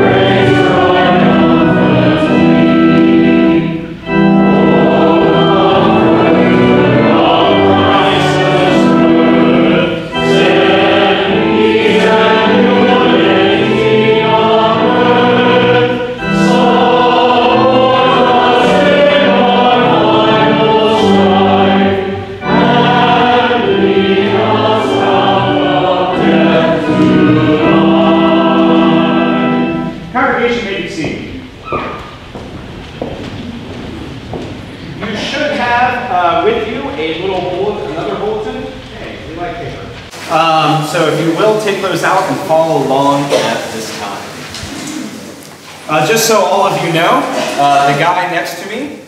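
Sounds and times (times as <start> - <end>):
group singing a hymn: 0.0 - 31.3
musical accompaniment: 0.0 - 48.1.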